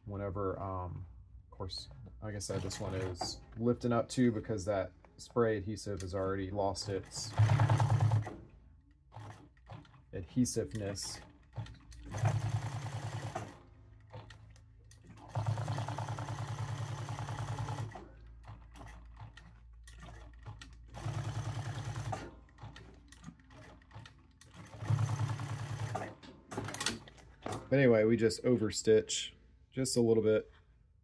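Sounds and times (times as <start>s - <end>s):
sewing machine stitching: 2.4s - 3.6s, 6.7s - 27.2s.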